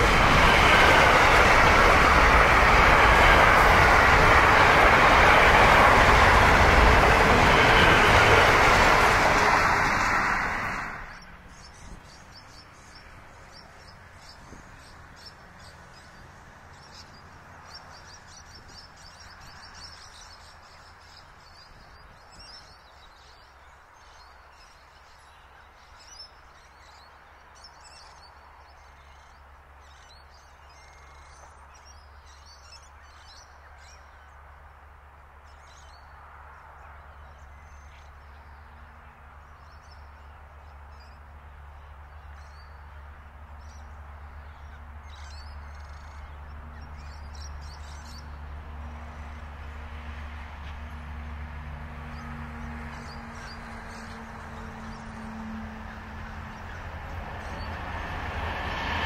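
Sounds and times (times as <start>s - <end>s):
birds chirping: 0.0s - 23.2s.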